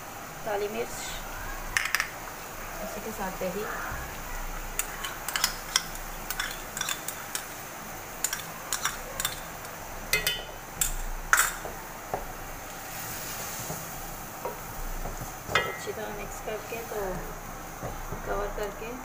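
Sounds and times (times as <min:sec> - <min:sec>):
faint steady hiss: 0:00.0 - 0:19.0
spoon knocking against pot: 0:10.1 - 0:12.3, 0:14.4 - 0:15.9.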